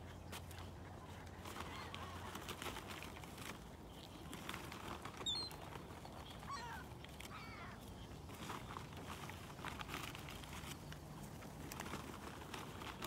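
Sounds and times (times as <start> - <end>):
faint outdoor background: 0.0 - 13.0
gulls calling: 5.1 - 7.9.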